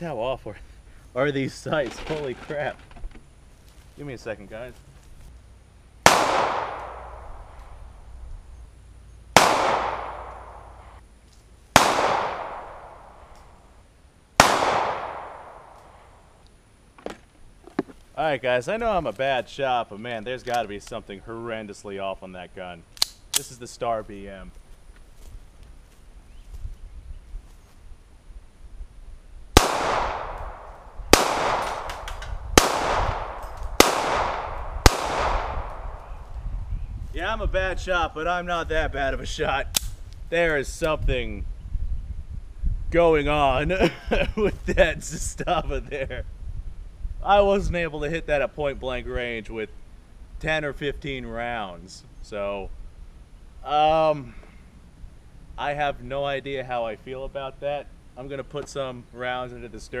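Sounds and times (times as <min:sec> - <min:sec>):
pistol shots with echo: 0:06.0 - 0:07.6, 0:09.4 - 0:11.0, 0:11.8 - 0:13.3, 0:14.4 - 0:15.8, 0:29.6 - 0:36.1.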